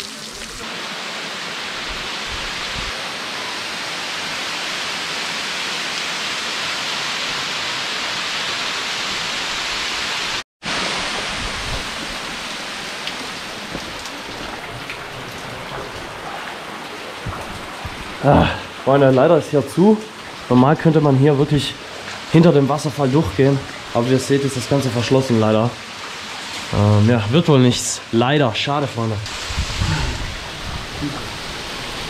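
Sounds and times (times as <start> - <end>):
waterfall rushing hiss: 16.1 - 19.1, 29.3 - 32.0.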